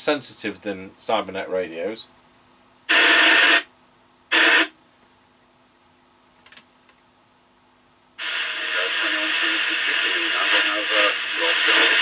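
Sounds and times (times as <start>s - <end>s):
radio speaker hiss bursts: 2.9s - 3.7s, 4.3s - 4.7s, 8.2s - 12.0s.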